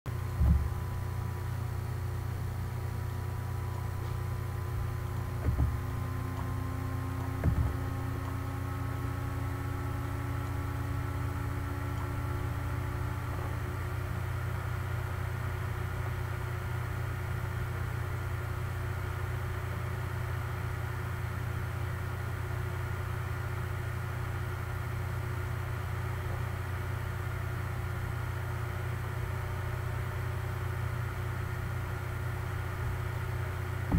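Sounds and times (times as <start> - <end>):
low machine hum: 0.1 - 33.9
low thumps: 0.4 - 1.0, 4.1 - 10.4.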